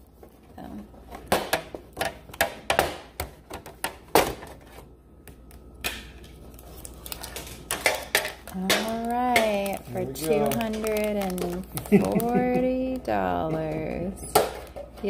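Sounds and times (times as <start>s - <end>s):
packaging rustling: 6.4s - 13.4s
card pack packaging clicking: 6.6s - 13.1s
person speaking: 8.6s - 14.4s.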